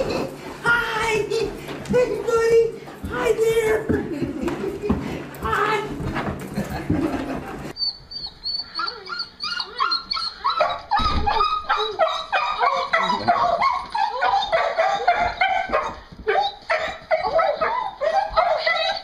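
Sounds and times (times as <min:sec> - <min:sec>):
dog whining and yelping: 0:07.8 - 0:19.0.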